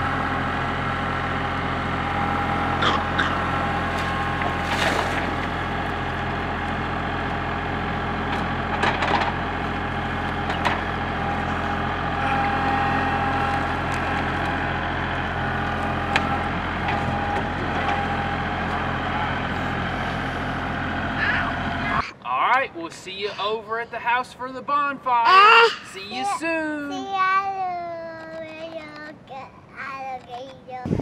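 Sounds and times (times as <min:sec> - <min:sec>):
diesel tractor engine running: 0:00.0 - 0:25.1.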